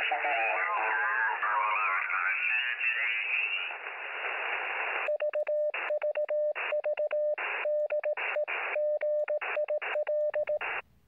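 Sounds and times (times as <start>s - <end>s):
radio hiss: 0.0s - 5.1s
morse code tone: 5.1s - 10.8s.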